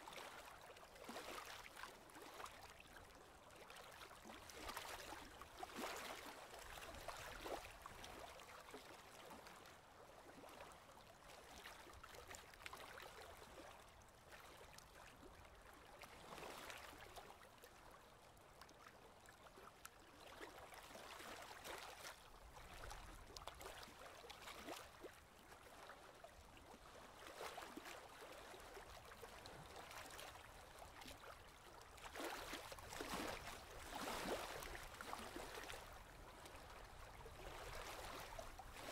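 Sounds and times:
paddle splashing in water: 32.0 - 38.9.

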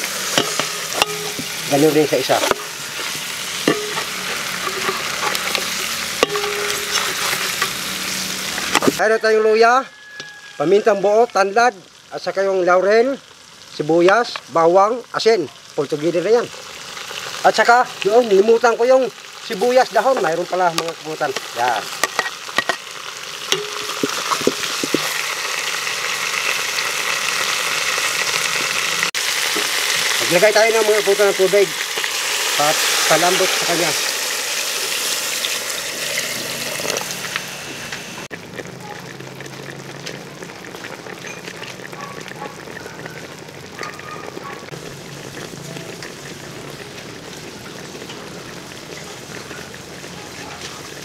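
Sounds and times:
meat sizzling in a hot pot: 0.0 - 51.0
spatula clinking against pot: 0.4 - 1.4, 3.7 - 7.5.

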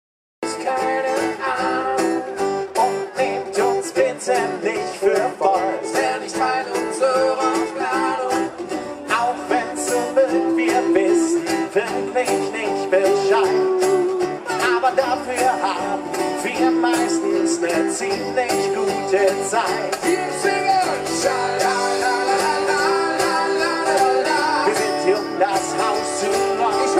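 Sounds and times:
acoustic trio playing: 0.4 - 26.9.

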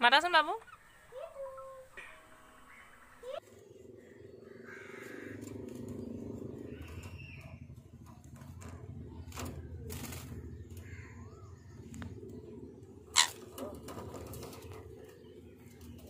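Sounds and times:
low background rumble: 0.0 - 16.0
parakeets calling softly: 0.6 - 7.7, 9.1 - 16.0.

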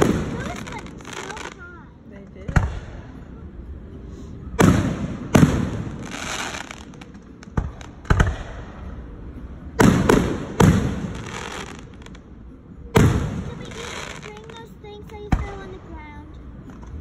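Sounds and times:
fireworks bangs with echo: 0.0 - 1.8, 2.4 - 3.2, 4.6 - 8.9, 9.8 - 12.2, 12.9 - 14.6.

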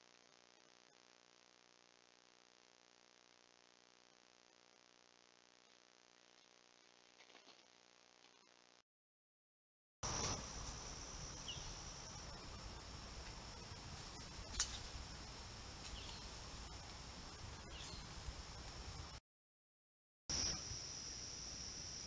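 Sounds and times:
crickets trilling: 10.0 - 19.2, 20.3 - 22.0
low hiss: 10.0 - 19.2, 20.3 - 22.0.

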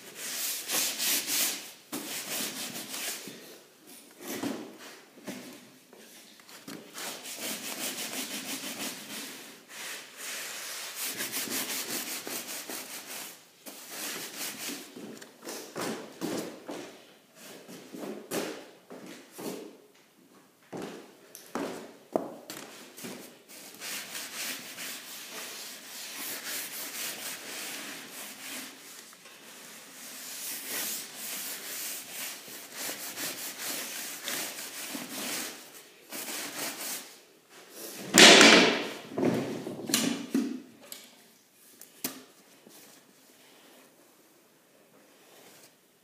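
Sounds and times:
broom scrubbing wet floor: 0.0 - 3.4, 6.9 - 14.9, 23.0 - 37.2.

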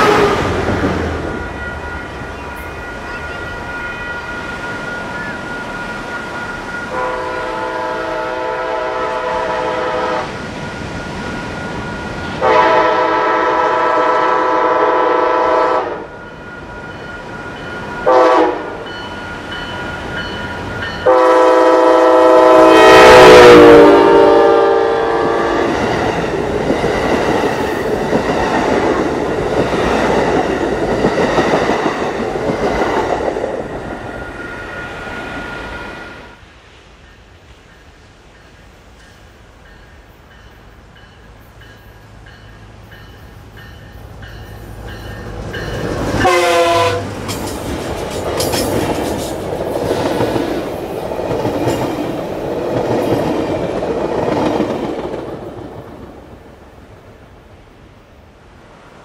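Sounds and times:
locomotive air horn blasts: 0.0 - 0.6, 6.9 - 10.4, 12.4 - 16.2, 18.0 - 18.8, 21.0 - 25.7, 46.0 - 47.2
train rushing and clattering: 0.0 - 57.6.

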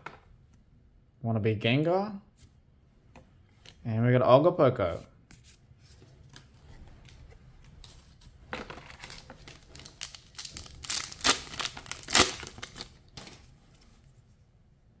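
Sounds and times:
foil wrapper crinkling: 8.9 - 13.3
foil wrapper ripping: 9.0 - 13.0.

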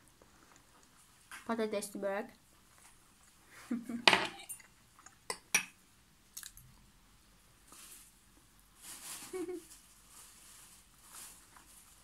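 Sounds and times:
soft eating sounds: 0.0 - 1.5, 2.5 - 5.5, 6.2 - 7.0.

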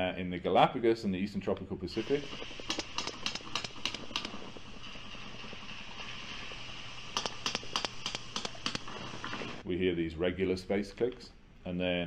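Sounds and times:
sea noise hiss: 2.0 - 9.6
sperm whale clicks: 2.5 - 4.7, 7.1 - 9.5.

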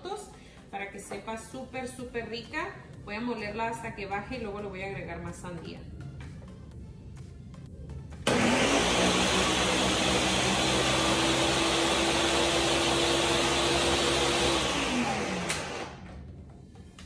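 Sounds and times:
blender motor running: 8.3 - 16.1
blender switch click: 15.4 - 15.9.

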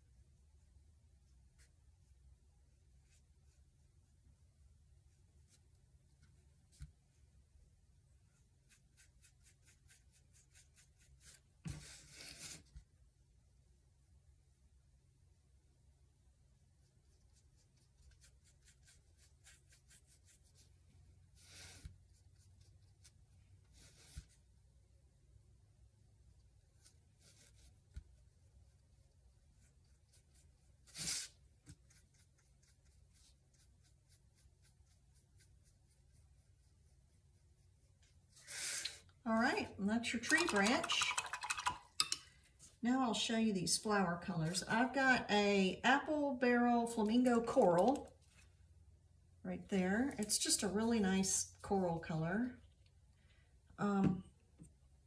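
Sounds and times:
paintbrush scratching on canvas: 8.3 - 12.9, 16.8 - 24.5, 26.4 - 38.6.

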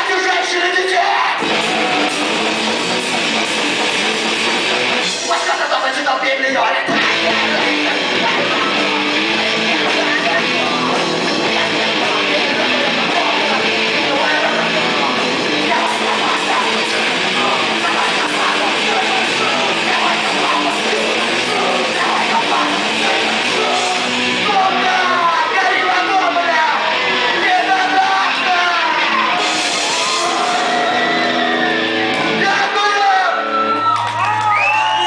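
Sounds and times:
electric guitar: 0.0 - 35.0
live rock band playing: 0.0 - 35.0
person singing: 5.1 - 33.3.

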